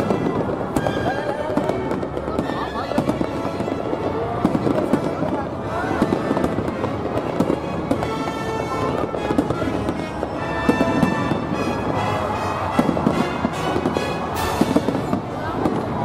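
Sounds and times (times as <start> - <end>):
fireworks bursting: 0.0 - 16.0
music playing: 7.4 - 15.6.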